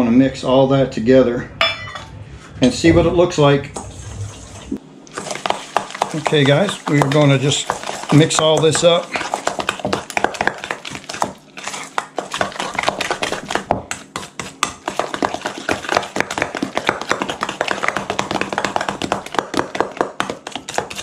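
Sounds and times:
utensil scraping a mixing bowl: 5.1 - 21.0.

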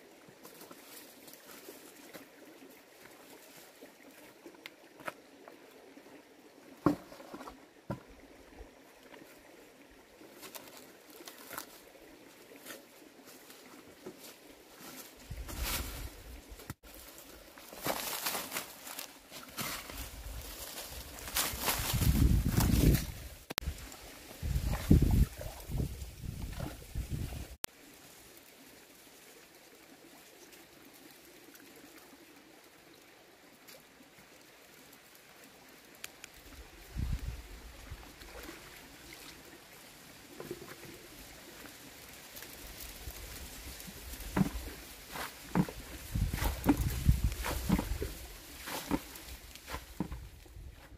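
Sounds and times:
stream trickling over rocks: 0.0 - 50.7
footsteps over stones and grass: 0.3 - 5.7, 10.2 - 27.6, 39.8 - 50.9
bucket splashing in stream: 43.4 - 50.3.

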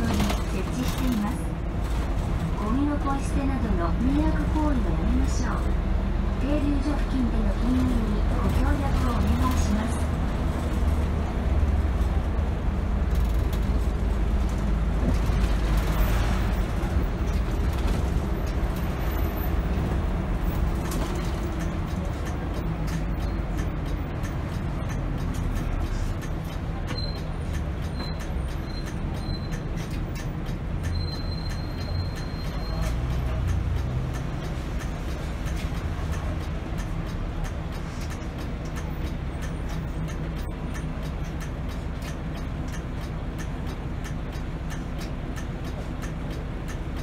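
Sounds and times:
bus engine and road rumble: 0.0 - 47.0.

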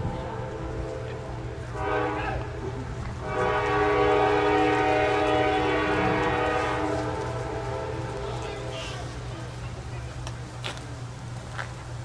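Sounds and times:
locomotive air horn: 0.0 - 9.2
diesel engine rumble: 0.0 - 12.0.

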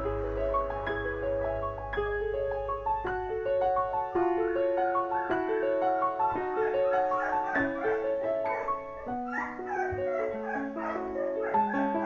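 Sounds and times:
gentle piano music: 0.0 - 12.0.

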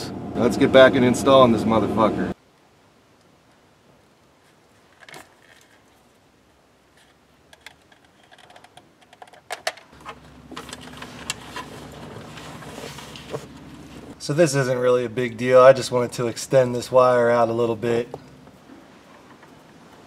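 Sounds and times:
faint steady hum: 0.0 - 20.0
clicks and rattles of wires: 4.9 - 6.0, 6.9 - 13.7.

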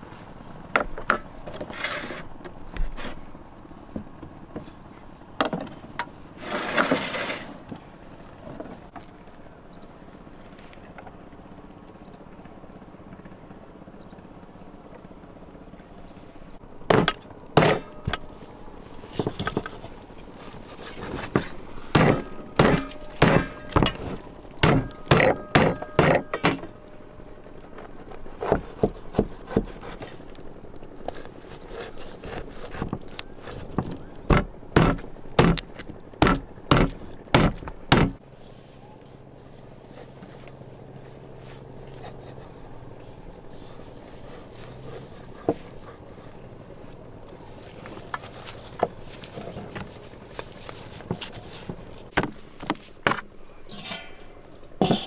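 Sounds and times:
knife chopping on wooden board: 16.9 - 18.2, 21.1 - 26.7, 28.4 - 30.0, 31.7 - 35.6, 36.2 - 38.2.

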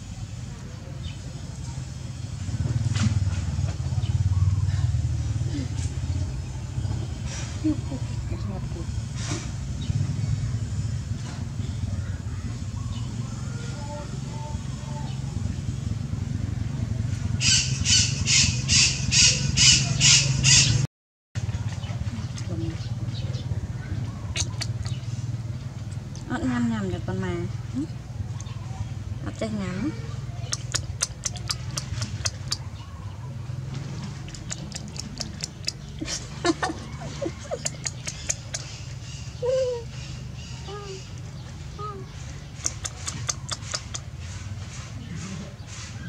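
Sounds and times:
baby monkey squawking: 17.4 - 20.8, 24.2 - 25.0, 29.9 - 32.9, 34.3 - 41.2, 42.5 - 44.1
sharp clicks and smacks: 24.4 - 25.0, 30.5 - 32.7, 34.2 - 35.9, 37.4 - 38.8, 42.5 - 44.9.

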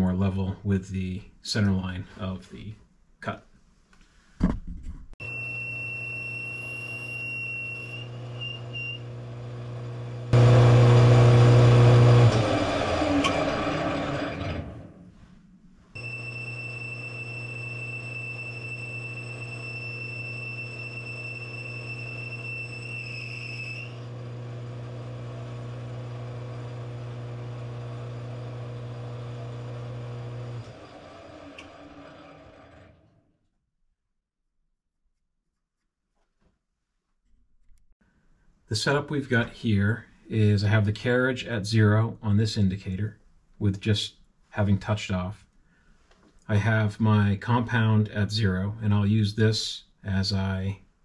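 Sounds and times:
metal lathe humming and whining: 5.2 - 14.8, 16.0 - 33.0
loud rough cutting noise: 8.0 - 15.0, 16.0 - 33.2.

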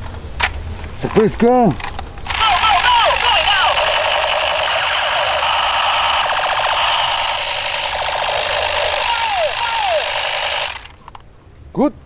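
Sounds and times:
toy gun fast noisy rattle: 1.9 - 11.2
falling pew tones: 2.3 - 11.1.

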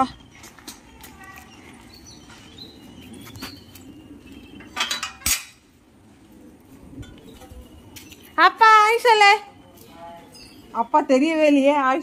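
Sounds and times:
metal gate and bolt clanking: 4.6 - 5.7.

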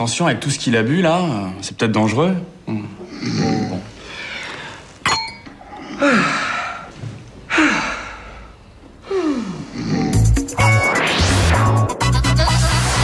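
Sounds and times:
glass clinking: 5.0 - 5.6
man snoring: 9.5 - 10.5
music with a swoosh: 10.2 - 13.0.

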